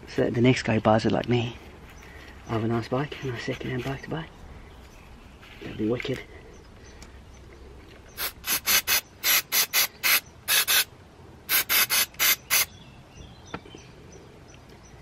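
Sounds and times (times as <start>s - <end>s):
aerosol spray hissing squirts: 8.2s - 10.9s, 11.5s - 12.7s.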